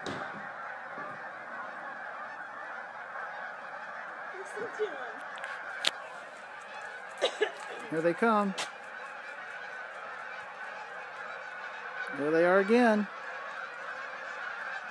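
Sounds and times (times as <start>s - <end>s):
flock of geese honking: 0.0s - 14.9s.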